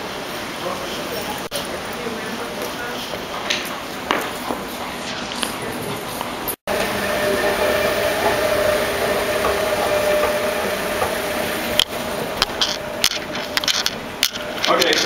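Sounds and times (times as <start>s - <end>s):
escalator mechanical hum: 0.0s - 15.0s
footsteps on tiled floor: 2.6s - 6.6s.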